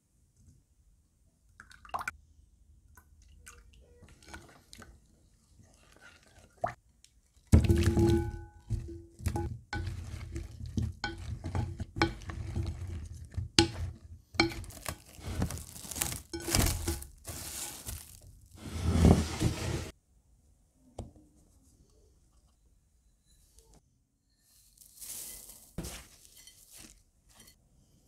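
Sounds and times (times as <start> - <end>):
cling film crinkling and tearing: 14.6 - 18.6.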